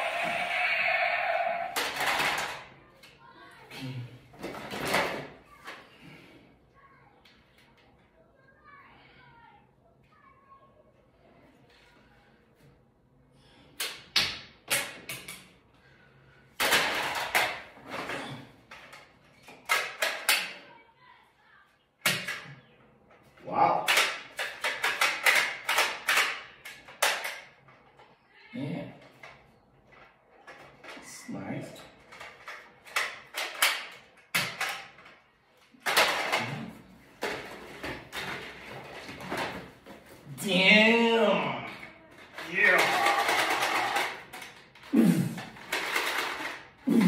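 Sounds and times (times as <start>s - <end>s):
plastic toy gun clacks: 1.7s - 3.1s, 18.7s - 20.6s, 23.8s - 28.0s, 32.0s - 36.6s, 42.2s - 46.8s
toy guns rattling in bag: 42.1s - 47.0s
plastic toy blaster clicks: 42.4s - 44.7s.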